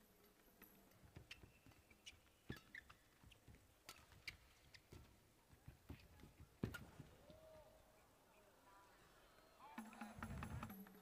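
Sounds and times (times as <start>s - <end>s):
shoes squeaking on court: 1.1s - 5.1s.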